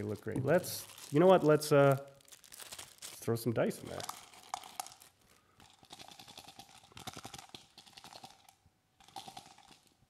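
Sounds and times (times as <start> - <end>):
dice rattling in cup: 3.8 - 10.0.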